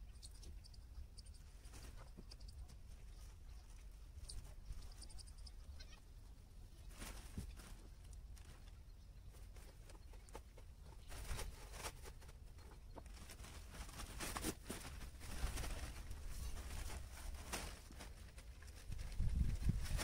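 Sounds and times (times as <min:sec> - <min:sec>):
tarpaulin knocks and rustles: 0:13.1 - 0:20.0.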